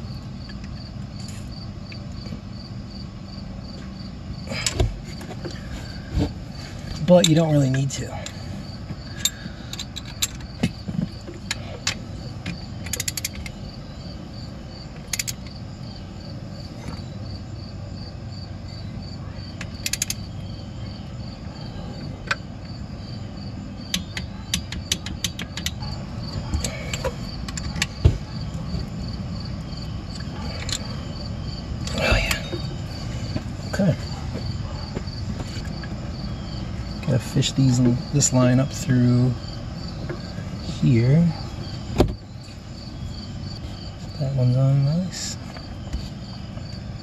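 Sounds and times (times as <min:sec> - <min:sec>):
ratchet wrench clicking: 0:12.8 - 0:13.6, 0:15.1 - 0:15.5, 0:19.6 - 0:20.2.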